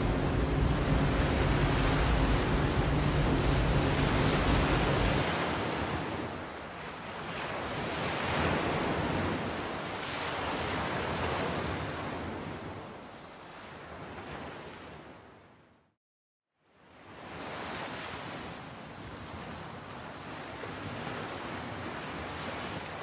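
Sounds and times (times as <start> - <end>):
low wind rumble: 0.0 - 6.5
waves washing: 0.0 - 11.8.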